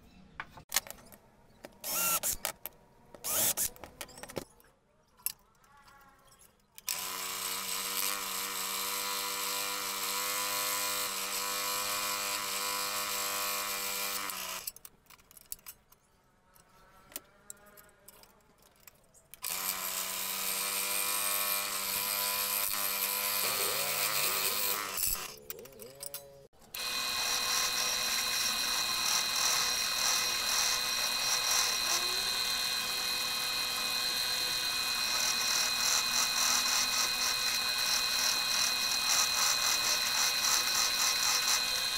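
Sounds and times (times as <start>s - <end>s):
scroll saw cutting wood: 1.8s - 2.6s, 3.2s - 4.2s, 6.8s - 14.8s, 19.4s - 41.9s
sanding drum whining: 26.8s - 41.9s.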